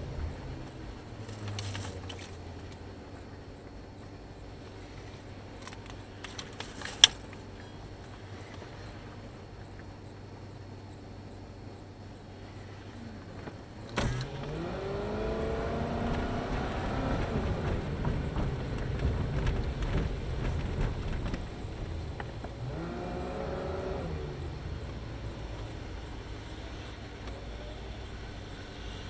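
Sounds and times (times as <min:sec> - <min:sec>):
car engine accelerating: 0:00.0 - 0:06.5, 0:12.2 - 0:29.0.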